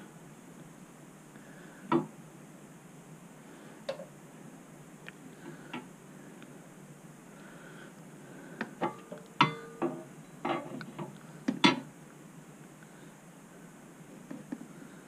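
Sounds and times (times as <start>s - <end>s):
metal stand clinking against frame: 8.8s - 10.7s.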